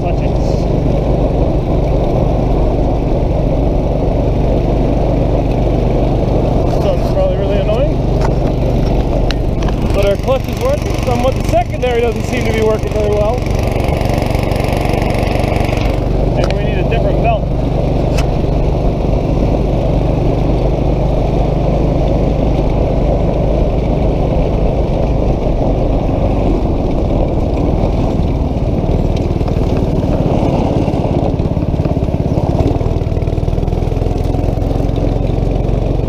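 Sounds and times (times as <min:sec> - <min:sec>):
go-kart engine running: 0:00.0 - 0:36.0
wind rushing over microphone: 0:00.0 - 0:36.0.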